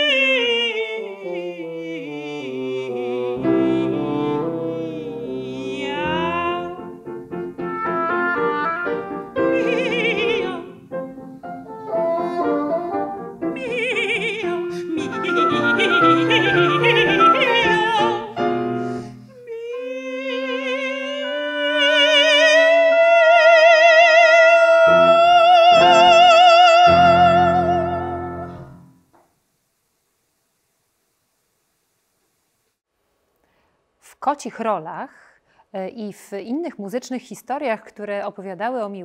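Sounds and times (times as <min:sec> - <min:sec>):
oboe: 0:00.0 - 0:06.9, 0:07.6 - 0:10.8, 0:11.7 - 0:28.8
operatic mezzo-soprano singing: 0:00.0 - 0:28.8
piano: 0:00.0 - 0:29.1
bassoon: 0:00.8 - 0:06.9, 0:07.5 - 0:10.8, 0:11.7 - 0:19.1.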